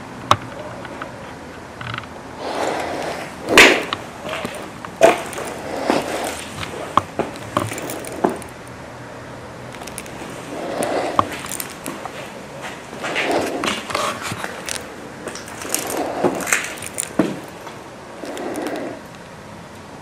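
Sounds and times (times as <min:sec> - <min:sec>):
breathing through a respirator: 0:02.4 - 0:08.3, 0:10.3 - 0:12.3, 0:13.0 - 0:14.8, 0:15.5 - 0:17.1, 0:18.2 - 0:19.1
debris clicking underfoot: 0:03.0 - 0:08.7, 0:09.7 - 0:19.2.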